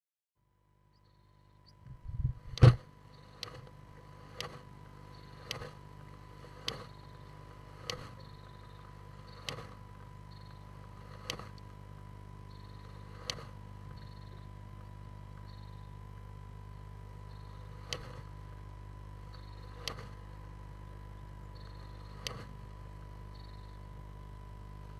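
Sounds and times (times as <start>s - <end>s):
steady low hum: 0.4s - 24.9s
thin whine: 0.6s - 24.9s
bird hissing and snapping: 2.5s - 4.6s, 5.2s - 8.2s, 9.3s - 9.8s, 10.8s - 11.6s, 12.8s - 13.6s, 17.6s - 18.3s, 19.7s - 20.2s, 22.0s - 22.5s.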